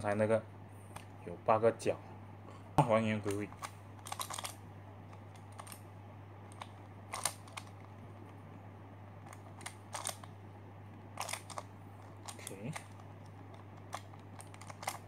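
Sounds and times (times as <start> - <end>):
steady low hum: 0.0 - 15.0
plastic puzzle clicking: 3.3 - 5.8, 6.5 - 7.7, 9.3 - 10.3, 11.2 - 15.0.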